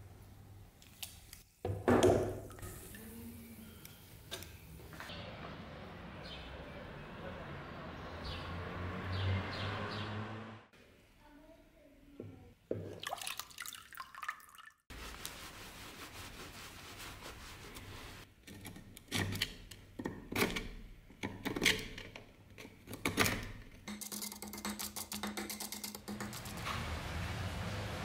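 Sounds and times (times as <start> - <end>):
water sloshing and dripping: 12.8 - 15.2
cloth rubbing: 14.9 - 18.3.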